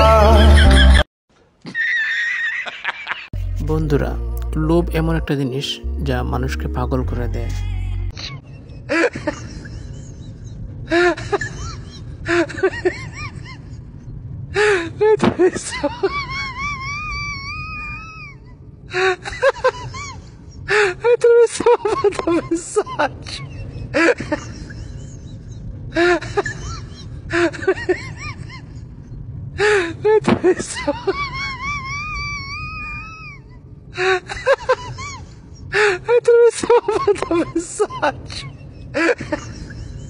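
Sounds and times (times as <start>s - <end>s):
person's voice: 3.4s - 8.1s
steady low rumble: 3.4s - 40.0s.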